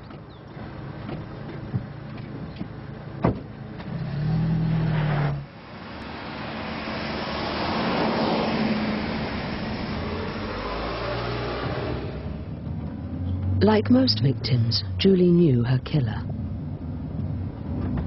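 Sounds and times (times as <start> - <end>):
car driving along road: 0.0 - 18.0
car engine starting: 0.0 - 18.0
car door shutting: 2.6 - 4.0.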